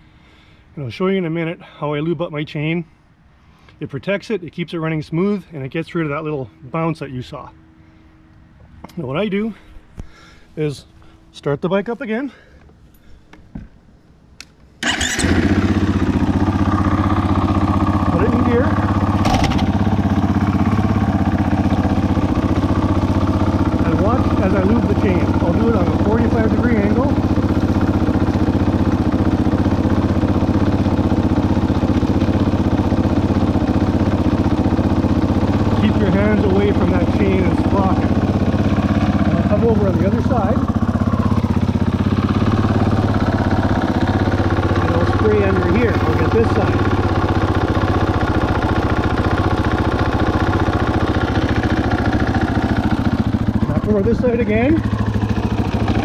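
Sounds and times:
dirt bike engine idling: 14.8s - 56.0s.

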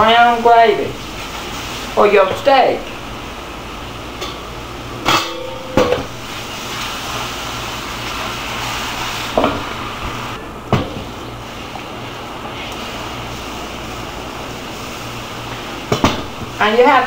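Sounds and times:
gravy hissing in a skillet: 0.6s - 2.6s, 6.1s - 10.4s, 11.1s - 17.0s.

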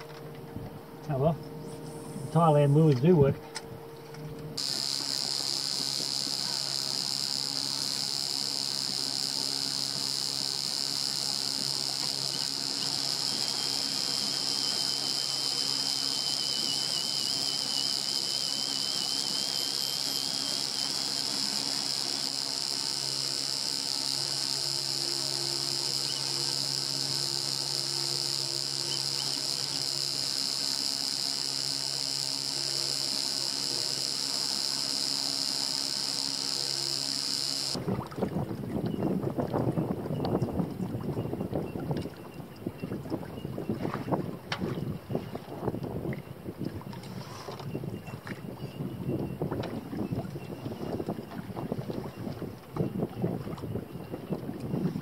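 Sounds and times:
faint low hum: 0.0s - 37.8s
high-pitched buzzing drone: 0.0s - 37.8s.

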